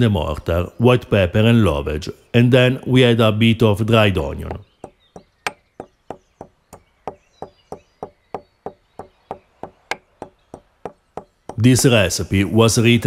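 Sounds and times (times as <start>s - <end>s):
pestle pounding in stone mortar: 4.4s - 11.7s.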